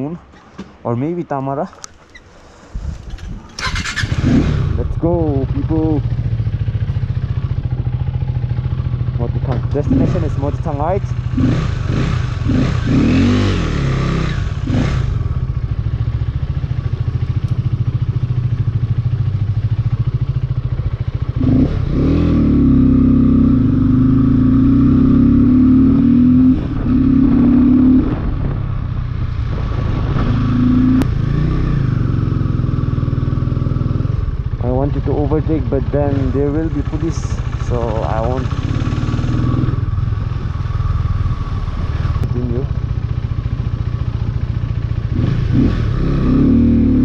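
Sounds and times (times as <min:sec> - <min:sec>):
motorcycle engine revving: 0:02.0 - 0:47.0.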